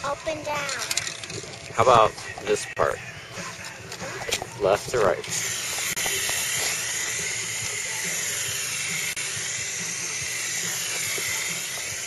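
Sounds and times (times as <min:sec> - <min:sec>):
paint sprayer hissing: 0:05.2 - 0:12.0.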